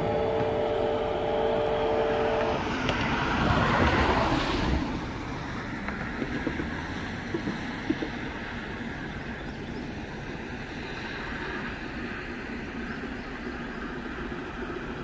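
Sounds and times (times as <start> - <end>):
distant steam locomotive whistle: 0.0 - 2.7
rush of noise: 0.0 - 7.7
low steady rumble: 0.0 - 15.0.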